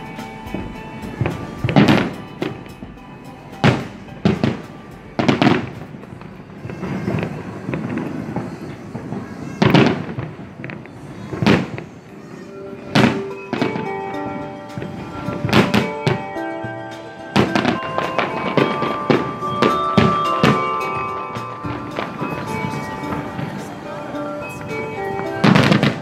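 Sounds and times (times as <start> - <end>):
faint background music: 0.0 - 9.2
firework bangs: 0.0 - 26.0
firework crackles: 0.0 - 26.0.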